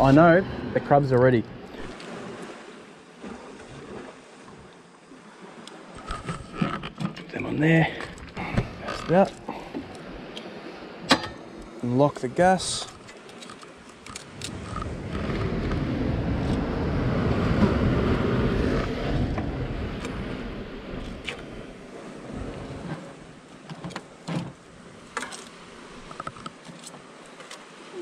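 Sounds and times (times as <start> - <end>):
wind on microphone: 14.4 - 23.0.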